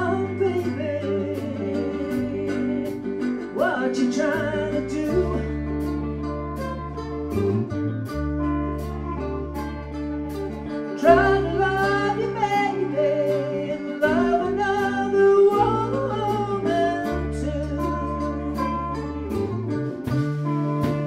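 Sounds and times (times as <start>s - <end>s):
person singing: 0.0s - 7.7s, 8.4s - 21.0s
bass guitar: 0.0s - 21.0s
electric guitar: 0.0s - 21.0s
steady drum beat: 18.6s - 21.0s.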